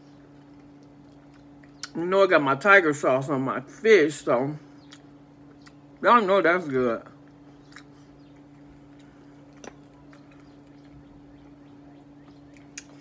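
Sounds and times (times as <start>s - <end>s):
low electrical hum: 0.0s - 13.0s
person chewing: 0.1s - 2.0s, 4.8s - 6.0s, 7.1s - 13.0s.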